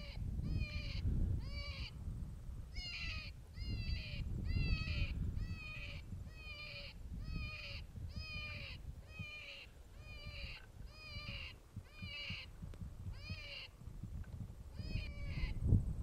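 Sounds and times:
animal distress call squeals: 0:00.0 - 0:01.9, 0:02.7 - 0:12.5, 0:14.8 - 0:15.6
wind rumble on microphone: 0:00.0 - 0:16.0.

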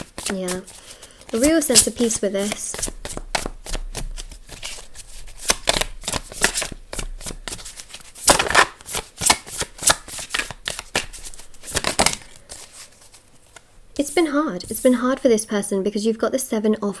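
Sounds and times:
cards being shuffled by hand: 0:00.0 - 0:13.7.

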